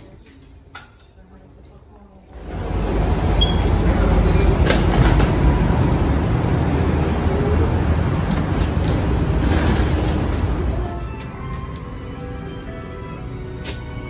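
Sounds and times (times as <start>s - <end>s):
low rumble of ground machinery: 2.4s - 11.9s.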